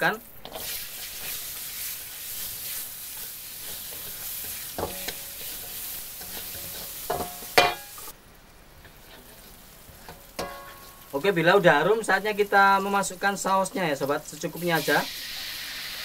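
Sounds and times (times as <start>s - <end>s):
vegetables sizzling in a wok: 0.0s - 16.0s
spatula knocking on a ringing wok: 6.6s - 8.0s, 10.4s - 10.9s.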